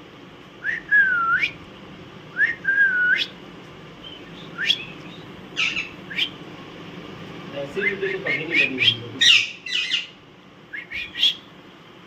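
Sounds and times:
parakeet whistling: 4.0 - 6.4, 7.8 - 11.5.

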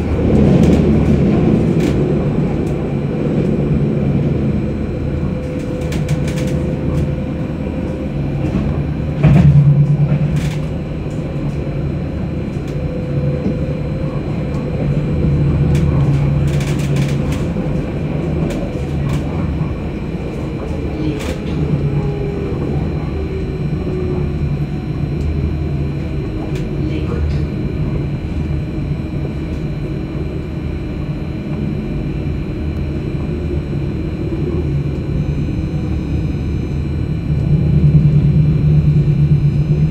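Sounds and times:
faint whine falling in pitch: 0.0 - 39.9
tram wheels rumbling on rail: 0.0 - 39.9.

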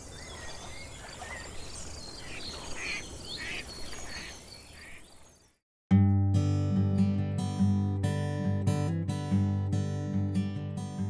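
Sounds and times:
birds calling: 0.0 - 5.6.

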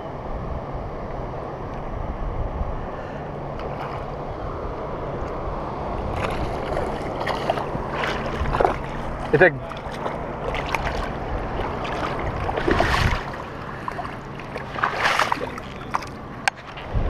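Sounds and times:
wind on microphone: 0.0 - 17.0
fish splashing: 6.0 - 16.8
water washing on rocks: 6.1 - 16.8.

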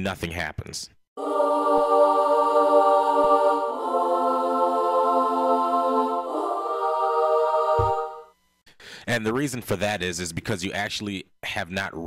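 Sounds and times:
synthesized choir chords: 1.2 - 8.4.

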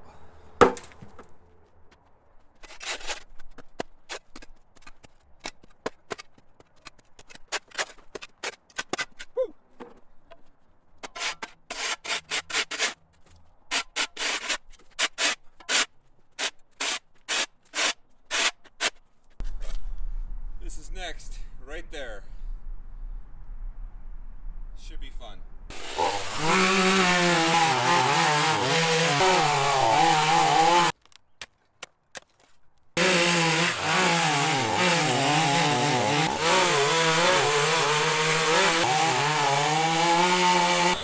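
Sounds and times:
hand tool scraping ground: 2.5 - 9.4, 11.0 - 19.8.

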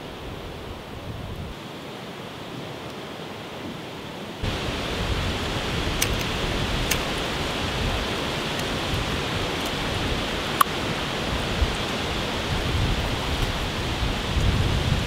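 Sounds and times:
wind rushing through trees: 0.0 - 15.0
faint sharp clicks: 6.0 - 7.2.

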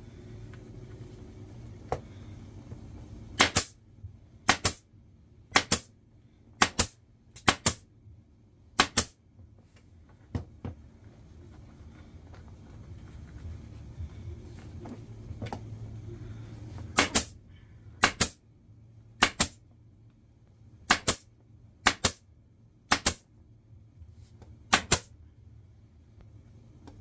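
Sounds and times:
pneumatic staple gun firing: 3.4 - 3.7.

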